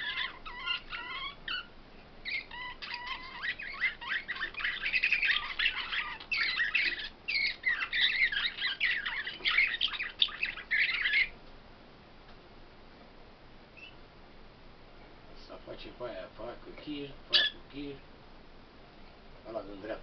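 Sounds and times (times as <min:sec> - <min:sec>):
songbird chirping and trilling: 0:00.0 - 0:11.4, 0:13.8 - 0:14.0, 0:16.9 - 0:18.0.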